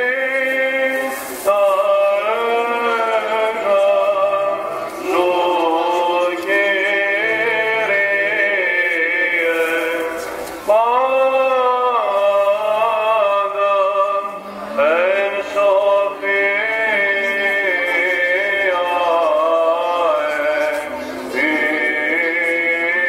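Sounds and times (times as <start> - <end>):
man chanting slow melody: 0.0 - 23.0.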